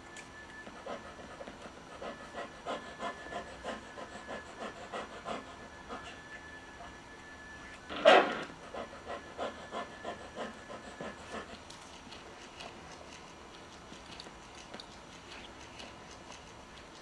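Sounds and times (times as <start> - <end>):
dog panting: 0.6 - 6.2, 8.4 - 17.0
dog barking: 8.0 - 8.4.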